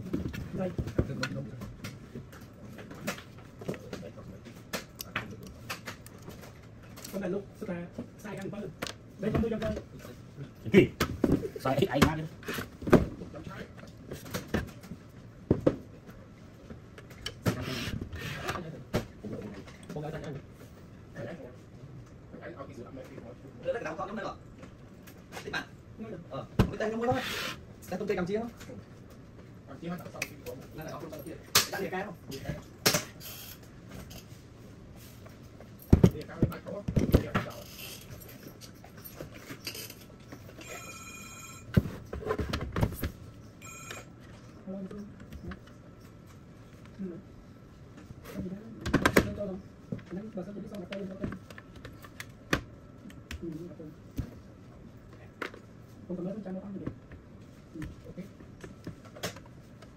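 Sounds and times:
electronic ring tone: 0:40.6 - 0:41.8, 0:43.6 - 0:44.1.

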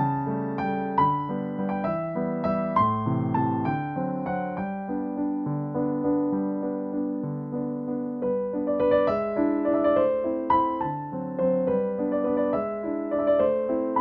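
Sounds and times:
gentle piano melody: 0:00.0 - 0:14.0.

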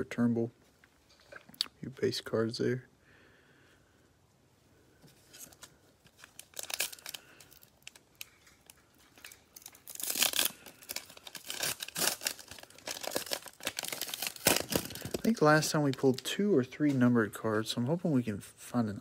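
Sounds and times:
plastic wrapper crinkling and tearing: 0:05.3 - 0:16.4.

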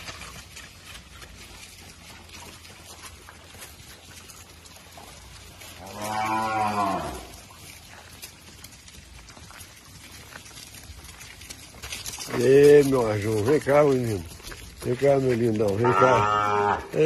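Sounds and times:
cow mooing: 0:05.7 - 0:07.4, 0:15.7 - 0:17.0.

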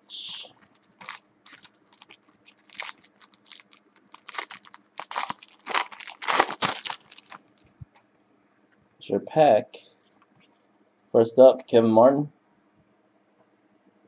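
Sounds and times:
foil pack crinkling and tearing: 0:00.6 - 0:07.4.

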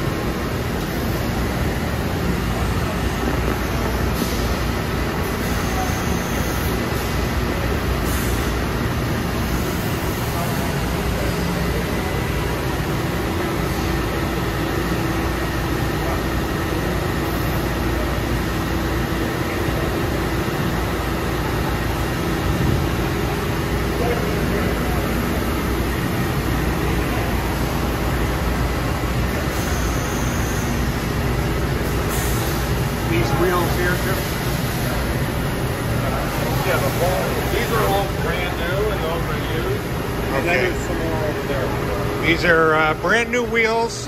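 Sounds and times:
coolant spray hissing: 0:31.8 - 0:35.0.

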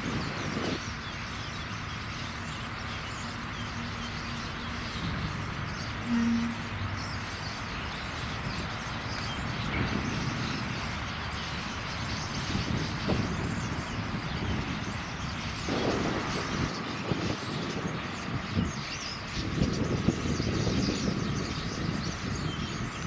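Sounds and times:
low background rumble: 0:00.0 - 0:23.0
starlings chirping and whistling: 0:00.0 - 0:23.0
low hum: 0:01.5 - 0:17.4.

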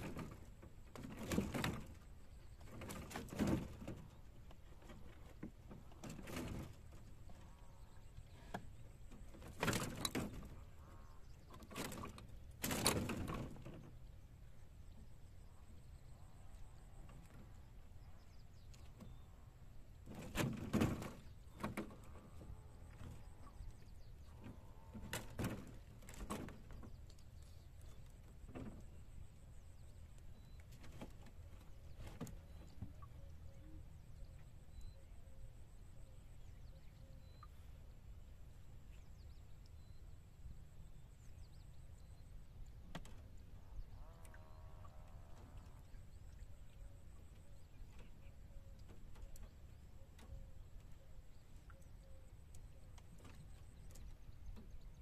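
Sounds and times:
wire-mesh fish trap rattling: 0:11.7 - 0:13.8
faint bird chirps: 0:26.6 - 0:38.0, 0:38.8 - 0:55.0.

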